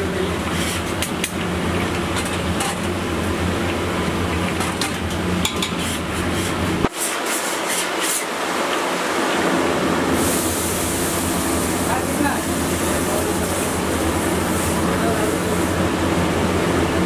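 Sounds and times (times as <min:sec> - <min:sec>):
oil sizzling and bubbling: 0:00.0 - 0:17.0
steady low hum: 0:08.9 - 0:17.0.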